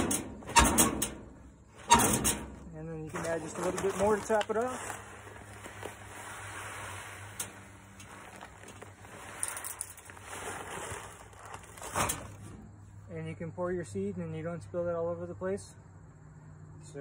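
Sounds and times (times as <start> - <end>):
seed pouring into a hopper: 3.4 - 11.4.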